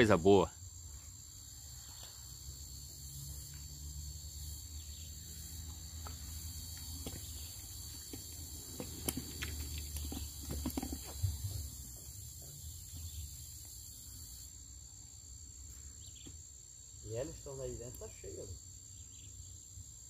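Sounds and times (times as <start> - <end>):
insect trilling: 0.0 - 20.0.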